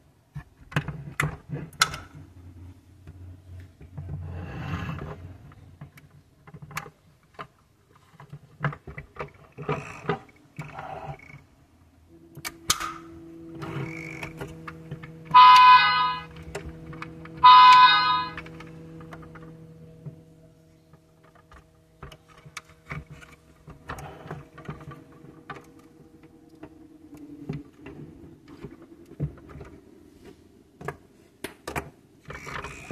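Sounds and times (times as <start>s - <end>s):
steady electronic hum: 10.0s - 30.8s
toy horn honks: 15.3s - 16.4s, 17.4s - 18.4s.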